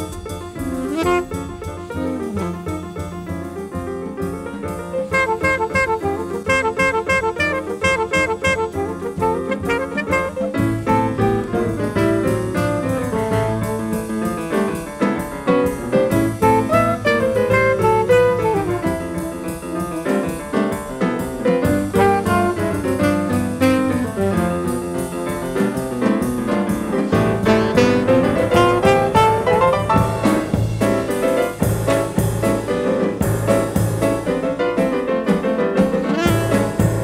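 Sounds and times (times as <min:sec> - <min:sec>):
jazz band playing: 0:00.0 - 0:37.0
piano playing fast lines: 0:00.0 - 0:37.0
alto saxophone: 0:00.6 - 0:03.4, 0:04.9 - 0:14.6, 0:16.1 - 0:20.4, 0:21.2 - 0:25.6, 0:27.0 - 0:31.1, 0:35.8 - 0:37.0.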